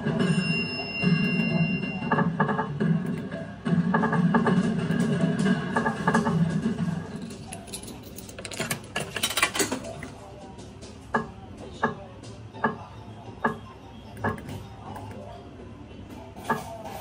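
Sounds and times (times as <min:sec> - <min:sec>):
coins rattling and clicking: 0:07.2 - 0:10.0.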